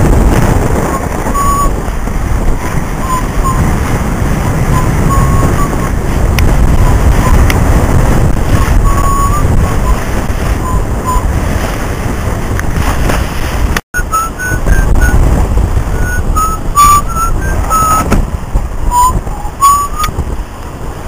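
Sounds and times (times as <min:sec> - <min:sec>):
water rushing past hull: 0:00.0 - 0:21.0
wind buffeting microphone: 0:00.0 - 0:21.0
high whistles: 0:04.7 - 0:05.9, 0:14.0 - 0:15.2, 0:16.0 - 0:18.1, 0:18.9 - 0:20.1.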